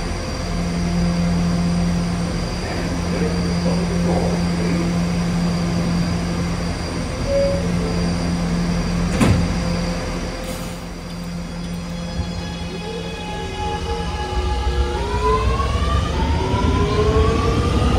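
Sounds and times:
train equipment hum: 0.0 - 17.9
short tone: 7.2 - 8.0
doors shutting knock: 9.1 - 9.5.

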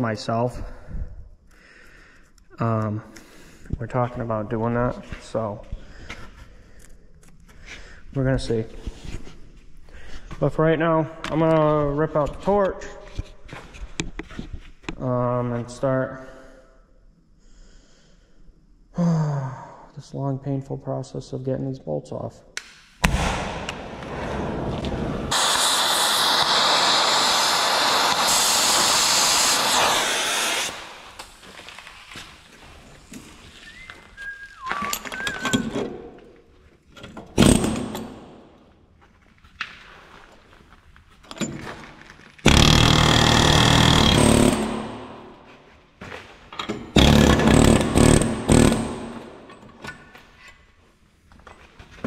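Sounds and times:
cutting torch hissing: 23.9 - 32.5
pneumatic air hammer bursts: 25.3 - 31.4, 42.4 - 45.2, 46.9 - 49.5.

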